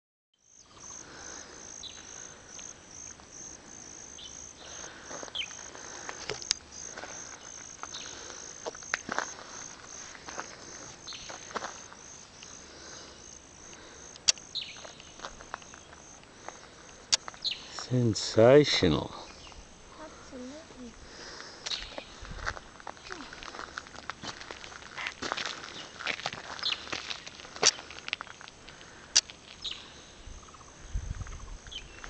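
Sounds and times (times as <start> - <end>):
insect chirping: 0.4 - 32.0
sharp clicks: 13.7 - 16.3.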